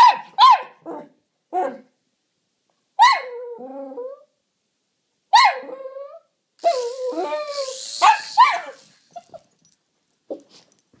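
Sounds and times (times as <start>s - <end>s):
dog barking sharply: 0.0s - 0.8s
dog whining: 5.5s - 9.5s.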